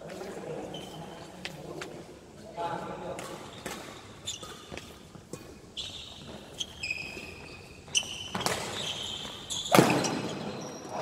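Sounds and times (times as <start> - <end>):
sneakers squeaking on court floor: 0.1 - 1.4, 3.1 - 11.0
rackets hitting shuttlecock: 3.1 - 6.4, 8.0 - 10.5.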